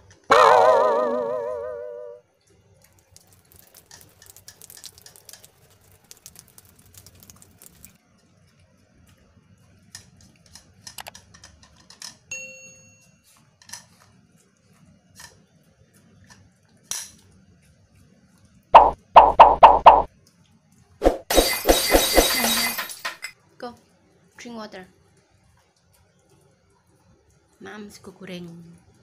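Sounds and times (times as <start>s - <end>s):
short ding: 12.3s - 13.1s.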